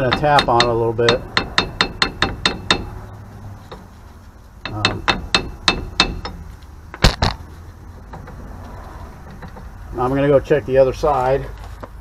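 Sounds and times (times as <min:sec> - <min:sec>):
hammer tapping on metal: 0:00.0 - 0:03.1, 0:04.6 - 0:07.1
loud metallic clanks: 0:00.0 - 0:03.9, 0:04.6 - 0:07.4.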